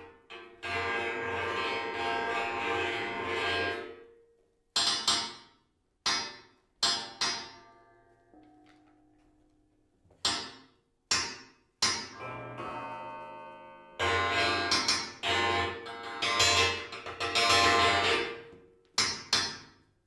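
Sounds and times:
metal coil springs struck ringing: 0:11.8 - 0:18.4.

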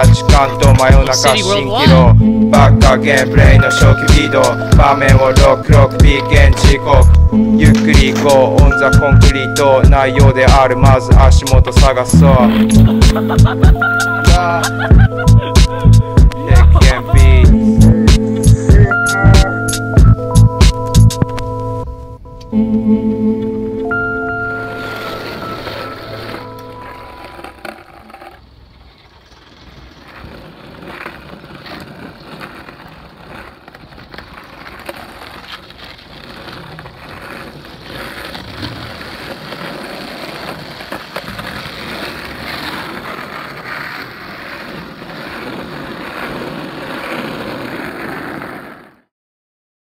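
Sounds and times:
skateboard clicks and clacks: 0:00.0 - 0:01.6, 0:02.8 - 0:07.2, 0:24.9 - 0:49.0
skateboard wheels rolling on asphalt: 0:00.0 - 0:22.4, 0:23.2 - 0:49.1.

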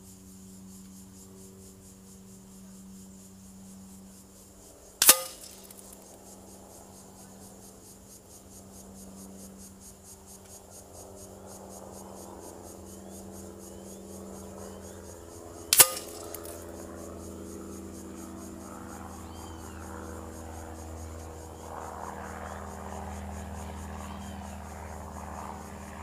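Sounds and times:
pellets striking target sharp cracks: 0:05.0 - 0:06.0, 0:15.7 - 0:16.6.

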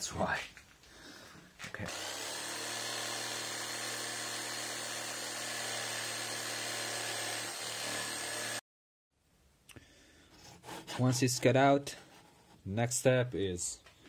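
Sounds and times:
jigsaw cutting wood: 0:01.8 - 0:08.6.

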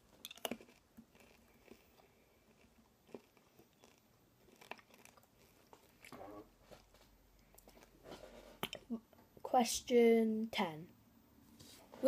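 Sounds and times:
person chewing snack: 0:00.0 - 0:08.0.

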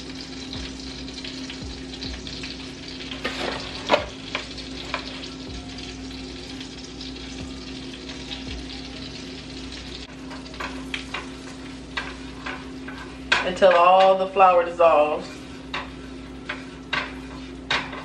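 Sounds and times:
butter sizzling in a pan: 0:00.0 - 0:18.0.

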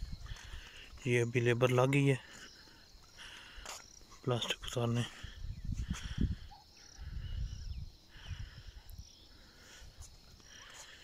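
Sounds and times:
wind buffeting microphone: 0:00.0 - 0:00.7, 0:04.6 - 0:10.0
insects chirring: 0:00.0 - 0:11.0.

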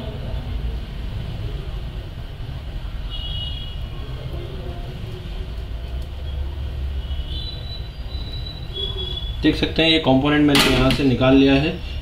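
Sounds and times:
faint high whistles: 0:07.0 - 0:09.5.

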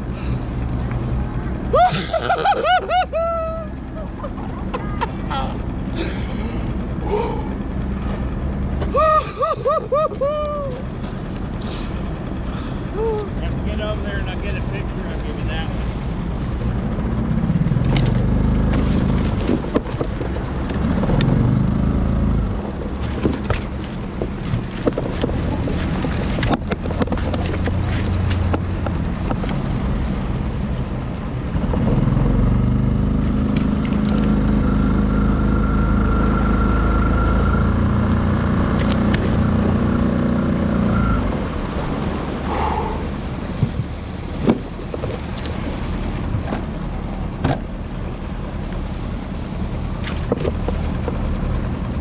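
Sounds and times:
small boat motor running: 0:00.0 - 0:52.0
knocks and clicks of gear: 0:17.6 - 0:21.4, 0:22.7 - 0:29.9, 0:33.5 - 0:34.4, 0:38.8 - 0:39.4, 0:43.6 - 0:48.9, 0:49.9 - 0:51.9.

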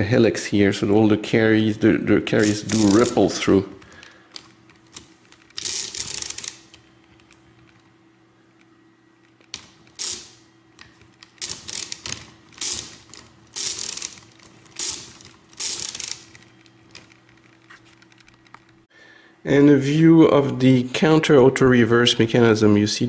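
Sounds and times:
mechanical calculator gears ratcheting: 0:02.4 - 0:03.4, 0:04.3 - 0:07.8, 0:09.3 - 0:18.8.

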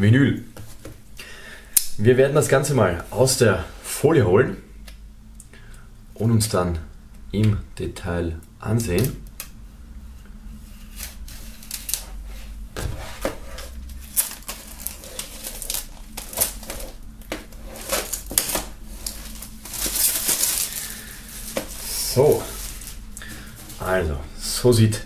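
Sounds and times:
knife slitting plastic film: 0:11.0 - 0:12.1, 0:13.8 - 0:17.0, 0:17.7 - 0:23.0
plastic film crinkling and tearing: 0:11.0 - 0:12.2, 0:13.6 - 0:24.0.

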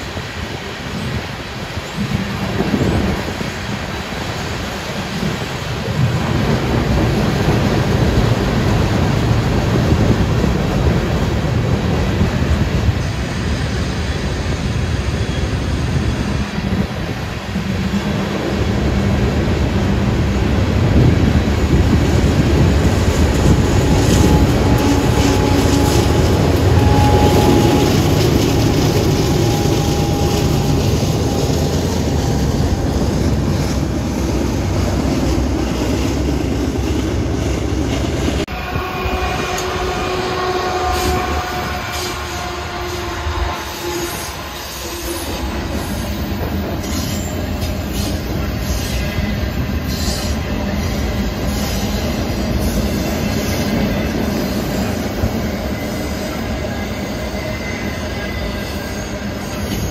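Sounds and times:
diesel locomotive passing: 0:00.0 - 0:59.9
freight train rolling past: 0:00.0 - 0:59.9
steady locomotive tones: 0:00.0 - 0:59.9.

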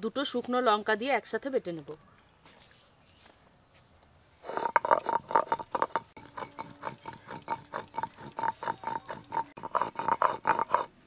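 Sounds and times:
stone roller grinding spices: 0:04.4 - 0:11.0.

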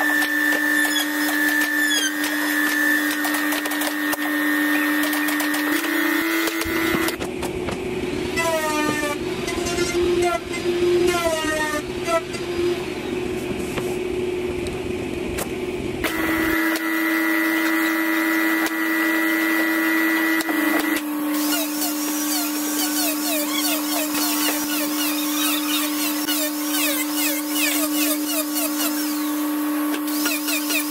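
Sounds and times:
electric router motor whining: 0:00.0 - 0:07.2, 0:16.0 - 0:30.9.

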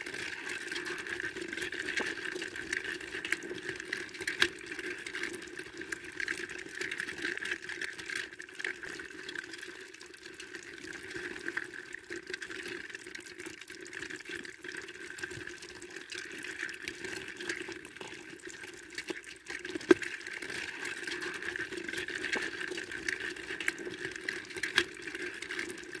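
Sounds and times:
crawfish rustling in plastic bucket: 0:00.0 - 0:05.9, 0:16.2 - 0:26.0.

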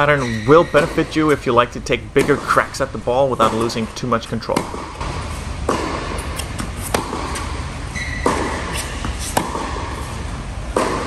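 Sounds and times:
high squeak: 0:00.0 - 0:01.1, 0:07.9 - 0:09.4
tennis ball struck by rackets: 0:02.2 - 0:02.8, 0:04.5 - 0:11.0.

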